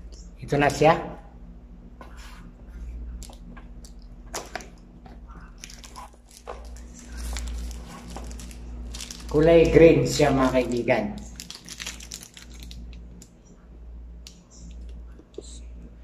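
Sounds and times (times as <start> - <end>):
steady low hum: 0.0 - 16.0
packaging taps and crinkles: 5.6 - 9.3, 11.2 - 13.3.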